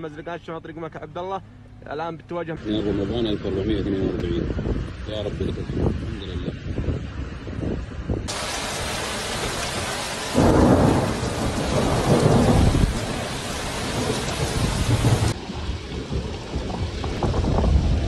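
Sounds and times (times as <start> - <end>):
wind noise on microphone: 3.0 - 13.1, 13.9 - 18.0
heavy rain hissing: 8.3 - 15.4
thunder rumbling: 8.3 - 18.0.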